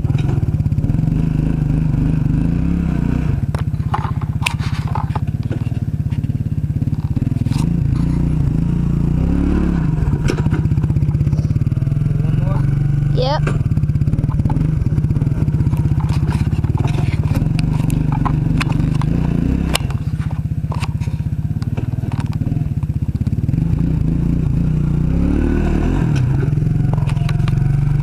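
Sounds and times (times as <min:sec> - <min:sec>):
atv engine idling: 0:00.0 - 0:28.0
brush and twigs scraping: 0:03.6 - 0:08.3, 0:15.2 - 0:22.4.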